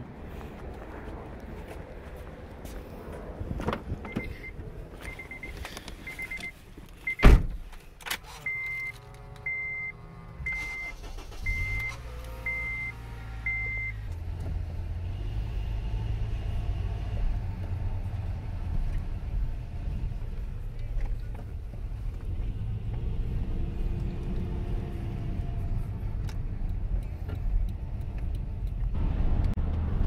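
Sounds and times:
car warning chime beeping: 4.1s - 7.2s, 8.5s - 14.0s
car door thudding shut: 7.2s - 7.6s
starter motor whirring: 10.5s - 13.7s.

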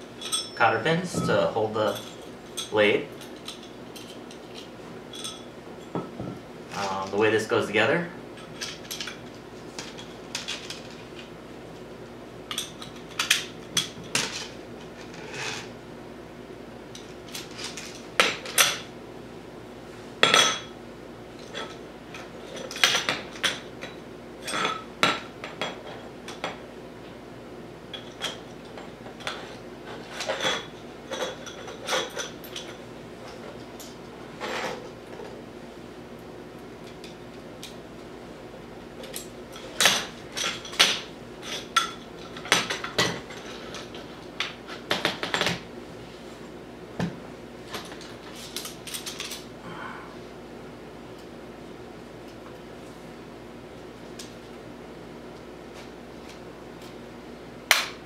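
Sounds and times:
metallic clinks and knocks: 0.2s - 6.4s.

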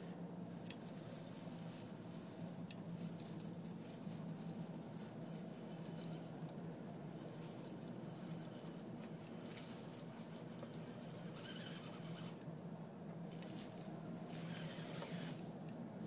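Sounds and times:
tyres crackling over dry leaves: 0.5s - 12.4s, 13.2s - 15.6s
toy car motor whirring: 9.5s - 12.4s, 14.3s - 15.5s.

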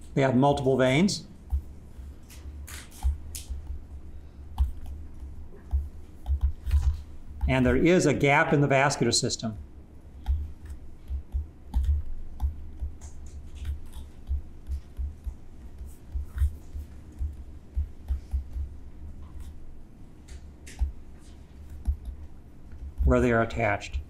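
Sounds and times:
stylus tapping on tablet: 1.4s - 1.7s, 4.5s - 7.9s, 10.2s - 19.6s, 20.3s - 23.4s.

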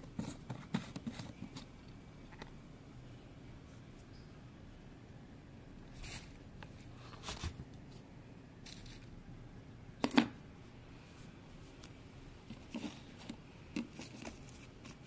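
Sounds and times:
plastic tub rustles and scrapes: 0.0s - 1.7s, 5.9s - 6.4s, 12.5s - 15.0s.

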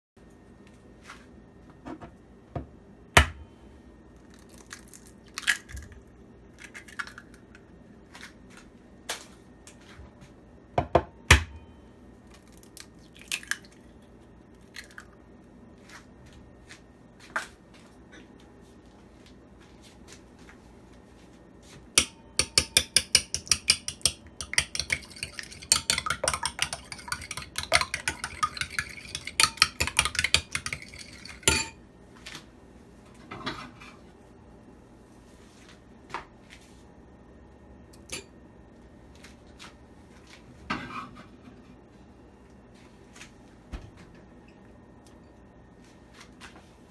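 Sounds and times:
eggs cracked on bowl rim: 12.4s - 13.8s, 22.4s - 31.7s
fork beating eggs in bowl: 22.0s - 31.8s.

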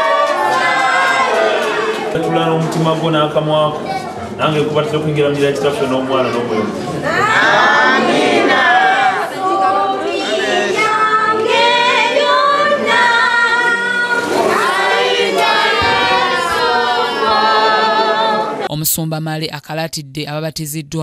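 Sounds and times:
choir singing a hymn: 0.0s - 2.0s, 7.0s - 18.7s.

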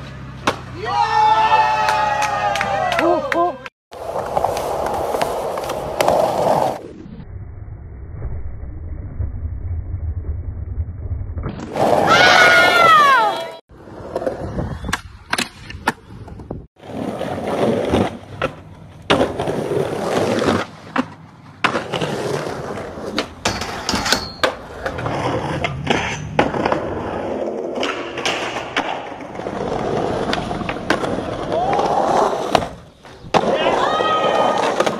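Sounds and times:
skateboards rolling on concrete: 0.0s - 7.1s, 11.4s - 34.9s
skateboards clacking: 14.9s - 34.9s.

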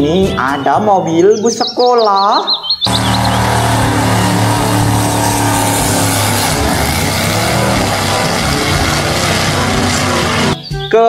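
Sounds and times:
loud engine running: 2.9s - 10.6s.

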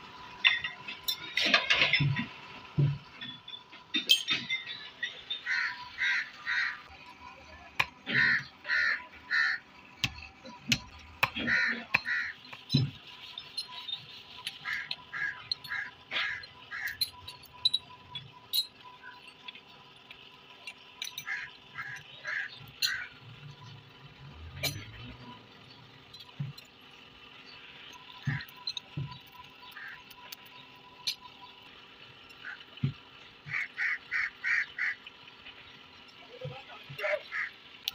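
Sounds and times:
metallic clinks of steel pieces: 0.4s - 2.0s, 3.2s - 5.3s, 12.7s - 19.5s, 24.5s - 25.4s
crows cawing: 5.4s - 6.9s, 8.0s - 9.7s, 11.2s - 12.4s, 14.6s - 17.0s, 21.2s - 23.1s, 28.2s - 28.5s, 29.6s - 30.0s, 32.4s - 32.7s, 33.4s - 35.1s, 37.1s - 37.6s.

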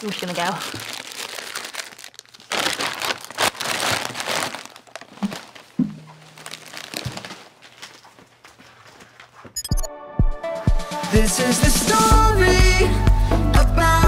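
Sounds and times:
chip bag crinkling: 0.0s - 8.9s.

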